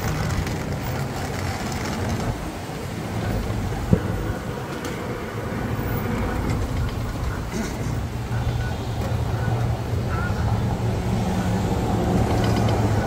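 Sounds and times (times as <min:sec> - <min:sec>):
vehicle engines rumbling: 0:00.0 - 0:13.0.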